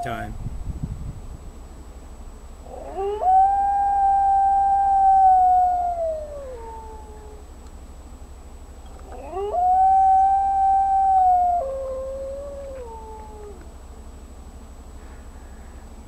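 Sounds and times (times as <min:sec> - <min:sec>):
wolf howling: 0:02.6 - 0:07.5, 0:09.1 - 0:13.7.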